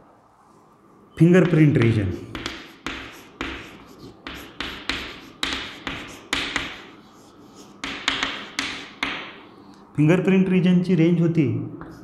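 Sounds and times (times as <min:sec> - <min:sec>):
chalk writing on chalkboard: 0:01.4 - 0:09.8, 0:11.8 - 0:12.0.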